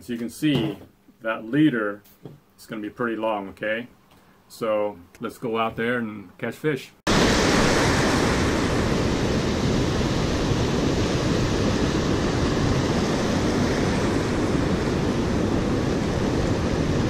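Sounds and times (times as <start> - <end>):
ocean surf breaking on beach: 7.1 - 17.0.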